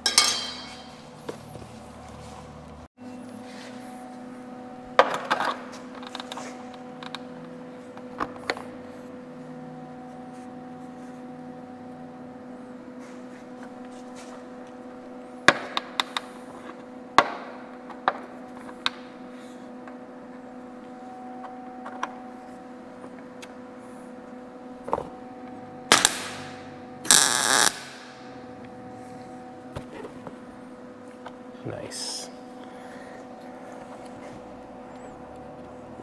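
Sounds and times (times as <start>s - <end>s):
steady hum: 0.0s - 36.0s
welding arc crackle: 25.9s - 28.3s.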